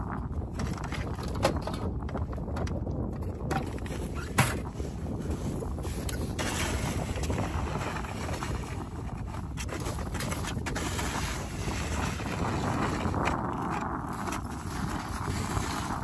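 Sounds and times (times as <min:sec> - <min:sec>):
wind buffeting microphone: 0:00.0 - 0:16.0
snow shovel scraping ice: 0:05.8 - 0:09.0, 0:09.6 - 0:16.0.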